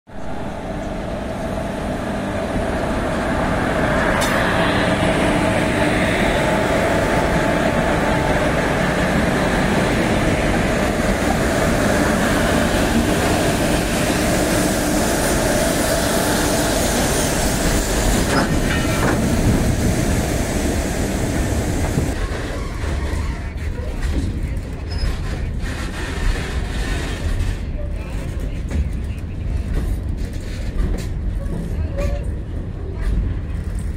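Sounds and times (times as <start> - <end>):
electric locomotive hum: 0.1 - 23.9
train wheels rumbling: 0.1 - 33.9.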